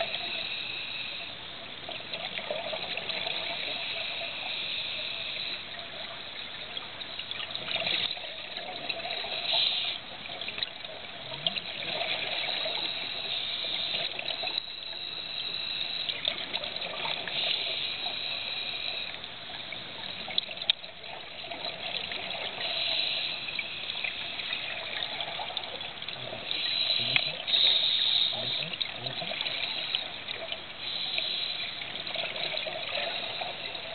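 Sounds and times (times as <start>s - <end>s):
diver breathing through regulator: 26.5s - 28.6s, 30.8s - 31.8s.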